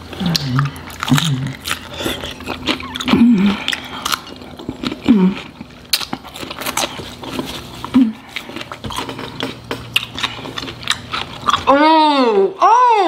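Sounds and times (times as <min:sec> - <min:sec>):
chewing and lip-smacking: 0:00.0 - 0:11.8
person humming: 0:03.1 - 0:03.7, 0:05.1 - 0:05.5, 0:07.9 - 0:08.3.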